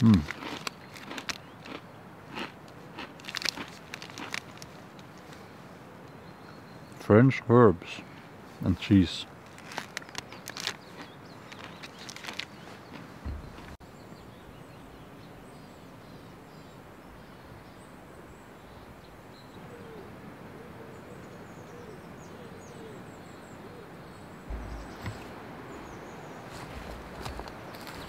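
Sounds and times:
small birds chirping: 0.0s - 28.0s
low bump: 13.2s - 13.8s, 24.5s - 27.4s
bird low call bending in pitch: 24.5s - 26.4s.

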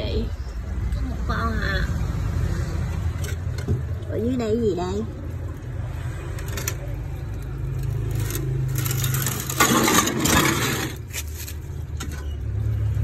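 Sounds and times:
board scraping over fish tank: 8.9s - 11.3s.

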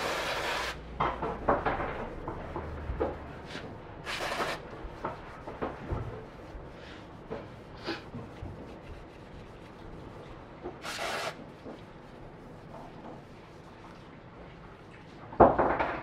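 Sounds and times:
cloth rag rubbing metal: 3.0s - 13.8s
aerosol spray hiss: 10.8s - 11.4s.

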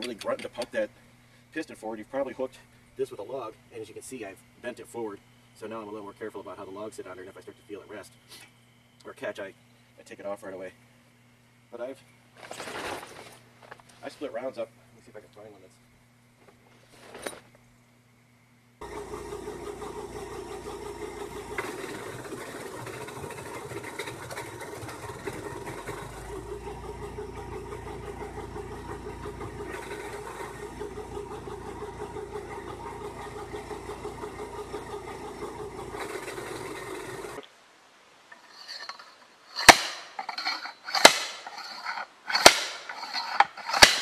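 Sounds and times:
wood chipper engine droning: 18.8s - 37.4s
log splitter striking a log: 39.6s - 40.3s, 40.9s - 41.6s, 42.3s - 44.0s.

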